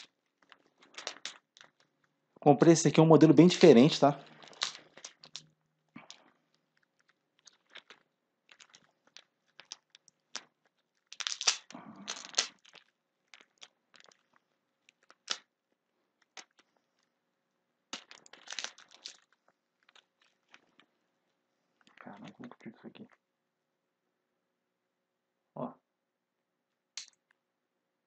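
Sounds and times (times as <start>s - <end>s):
plastic bag crinkling: 3.4s - 15.4s, 18.0s - 20.8s.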